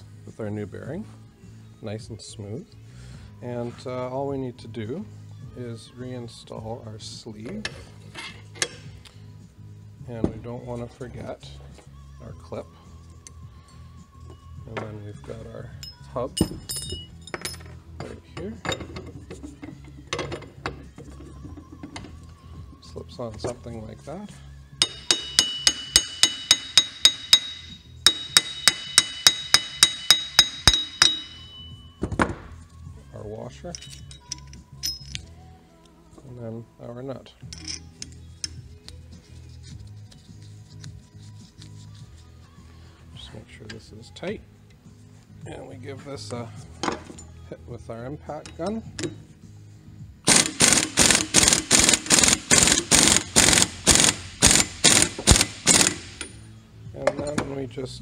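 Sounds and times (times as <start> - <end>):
metallic ringing tone: 24.8 - 32.0
hammer striking metal hub: 24.8 - 32.1.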